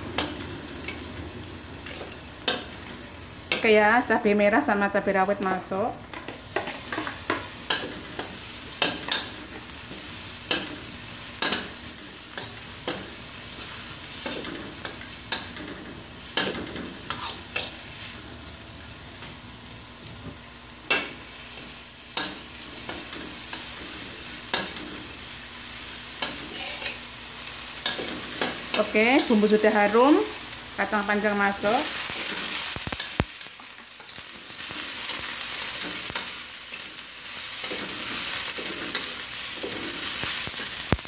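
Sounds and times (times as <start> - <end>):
vegetables sizzling in hot oil: 0.0 - 41.0
metal spatula scraping a pan: 16.4 - 17.8, 26.2 - 27.0.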